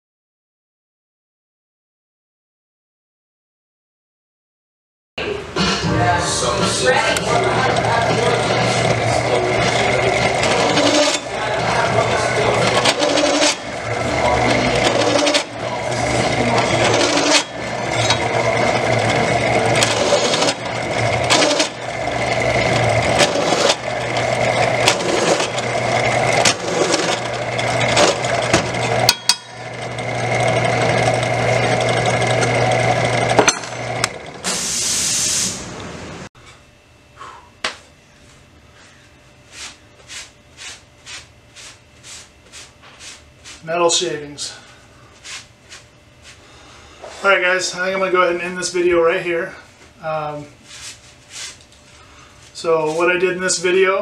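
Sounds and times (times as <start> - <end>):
drill press drilling steel: 7.2 - 35.3.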